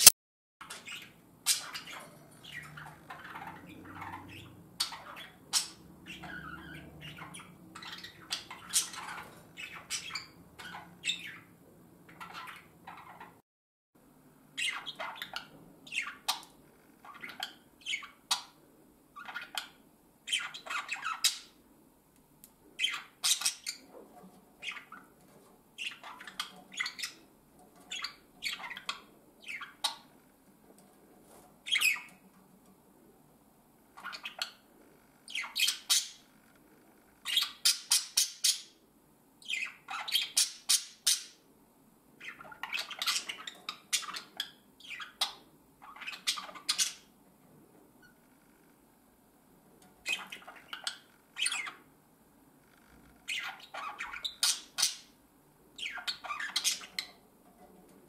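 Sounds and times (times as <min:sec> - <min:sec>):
budgerigars chirping and squawking: 0:00.6 - 0:13.4, 0:14.6 - 0:18.6, 0:19.2 - 0:21.6, 0:22.8 - 0:24.0, 0:24.6 - 0:25.2, 0:25.8 - 0:30.2, 0:31.6 - 0:32.3, 0:33.9 - 0:36.3, 0:37.2 - 0:38.8, 0:39.4 - 0:41.5, 0:42.2 - 0:47.2, 0:50.0 - 0:51.9, 0:53.2 - 0:55.2, 0:55.8 - 0:57.2.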